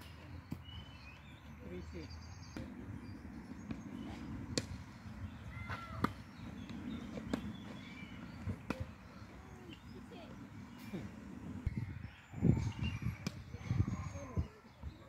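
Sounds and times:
birds chirping: 0.0s - 15.0s
balls bouncing on hard court: 2.5s - 11.4s
tennis balls hit with rackets: 2.5s - 11.7s.

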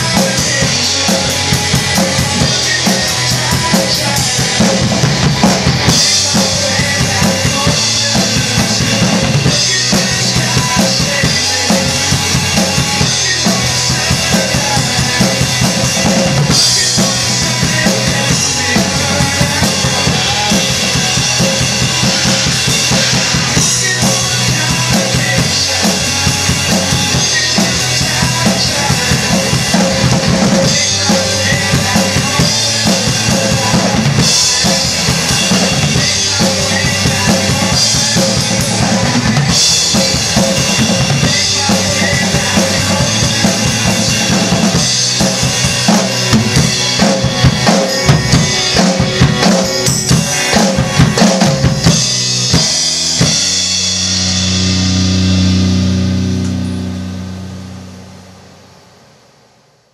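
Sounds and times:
bass drum and snare beat: 0.0s - 56.6s
rock drum kit playing: 0.0s - 58.4s
rock song recording: 0.0s - 58.4s.

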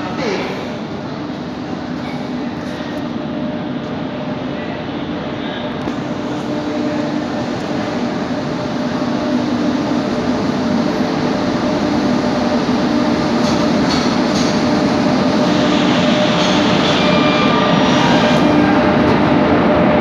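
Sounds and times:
electric train rumble and hum: 0.0s - 20.0s
train wheels clicking: 13.3s - 14.9s.

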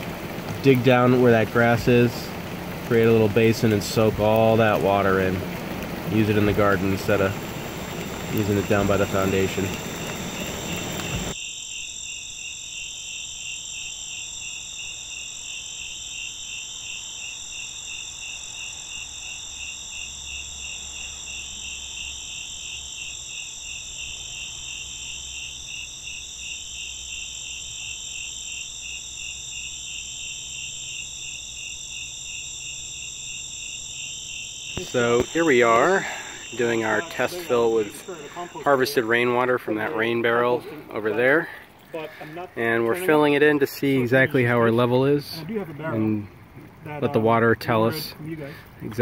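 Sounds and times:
crickets chirping: 0.0s - 49.0s.

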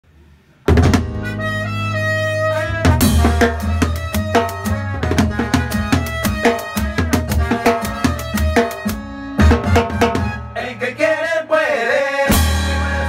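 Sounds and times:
bass: 0.0s - 11.3s, 11.9s - 13.0s
horn chord: 1.0s - 10.8s.

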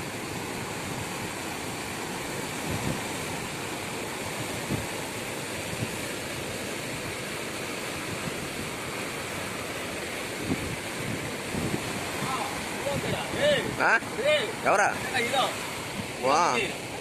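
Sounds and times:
river rushing: 0.0s - 17.0s.

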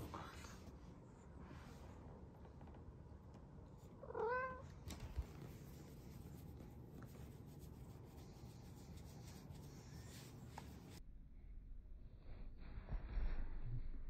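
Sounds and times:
cat meowing: 4.0s - 4.7s.

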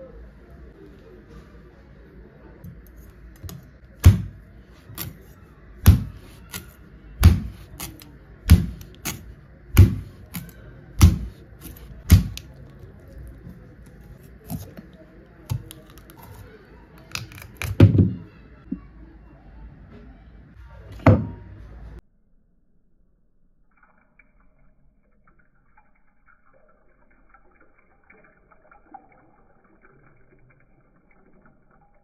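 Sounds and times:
knife chopping coconut husk: 4.0s - 5.2s, 5.9s - 12.5s.

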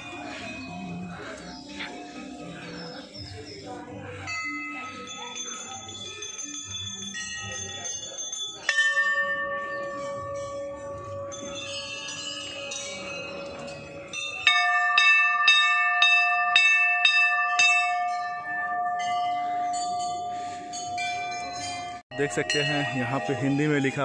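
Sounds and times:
temple bells ringing: 0.0s - 24.0s.

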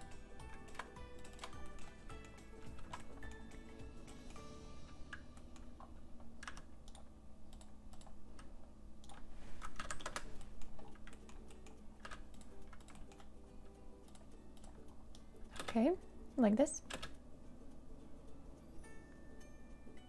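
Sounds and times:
quiet keyboard typing: 0.4s - 4.3s, 4.9s - 13.4s, 14.0s - 16.0s, 16.7s - 17.2s.

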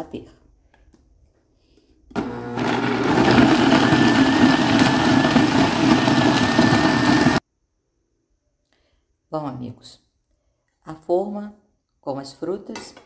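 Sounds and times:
blender motor whining: 2.1s - 7.4s.

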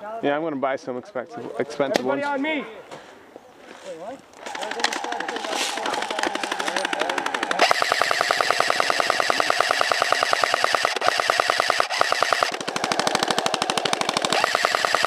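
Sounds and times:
airsoft gun firing bursts: 4.4s - 15.0s.

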